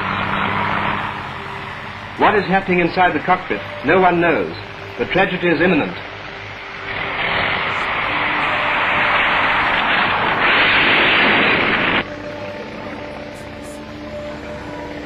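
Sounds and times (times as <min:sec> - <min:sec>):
film soundtrack hiss: 0:00.0 - 0:15.0
propeller plane engine: 0:00.0 - 0:15.0.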